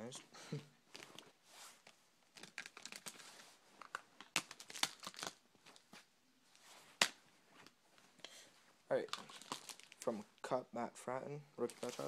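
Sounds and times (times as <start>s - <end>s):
plastic card sleeves crinkling: 0.9s - 6.0s, 8.9s - 10.2s, 11.6s - 12.0s.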